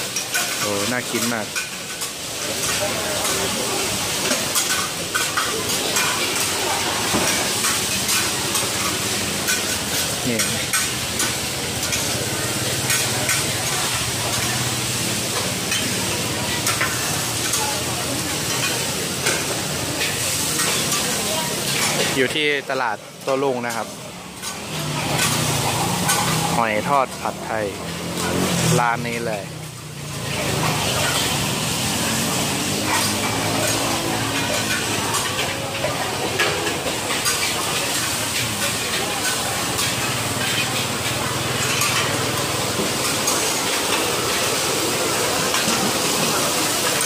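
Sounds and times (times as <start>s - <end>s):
hubbub of voices: 0.0s - 47.0s
pancake sizzling on a griddle: 0.0s - 47.0s
metal spatulas clanking and scraping: 4.2s - 14.5s, 15.4s - 16.0s, 16.6s - 22.2s, 24.4s - 26.6s, 30.4s - 44.4s
metal spatulas clinking and scraping: 30.7s - 31.5s, 32.8s - 42.2s.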